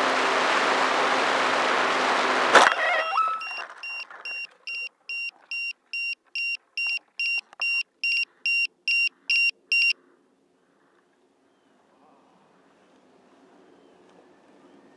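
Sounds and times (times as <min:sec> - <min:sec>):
rapid two-tone beeps: 0:03.0 - 0:10.0.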